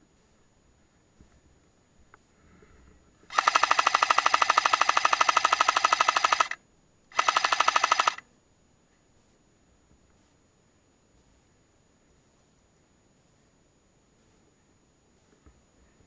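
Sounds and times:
airsoft machine gun bursts: 3.3 - 8.2.

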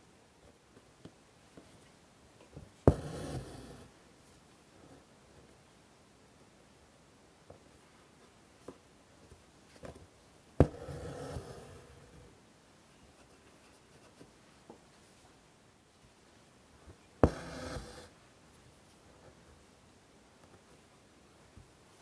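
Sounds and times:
needle tapping through fabric: 2.9 - 3.8, 10.6 - 11.7, 17.2 - 18.1
thread rasping through fabric: 2.9 - 3.9, 10.6 - 12.0, 17.2 - 18.1.

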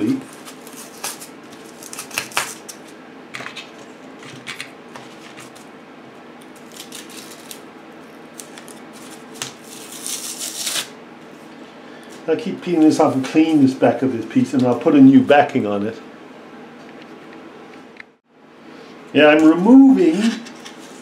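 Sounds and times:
cardboard tearing: 0.0 - 2.8, 6.6 - 7.6, 8.3 - 10.9.

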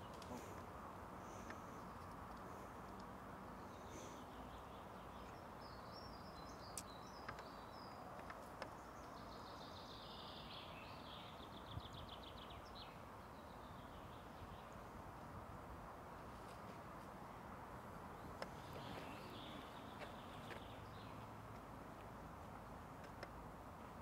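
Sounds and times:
songbird singing: 0.0 - 24.0
faint sharp clicks: 1.4 - 3.2, 6.7 - 7.5, 23.0 - 23.4.

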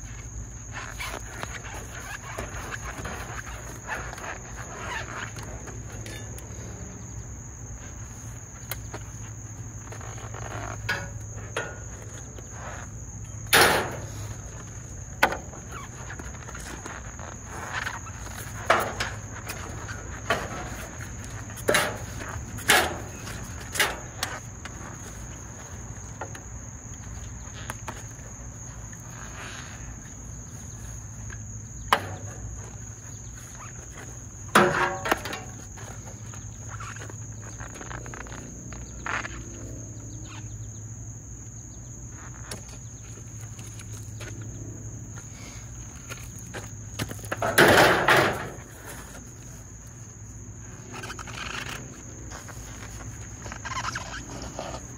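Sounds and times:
high-pitched insect drone: 35.0 - 46.8, 49.2 - 54.9.

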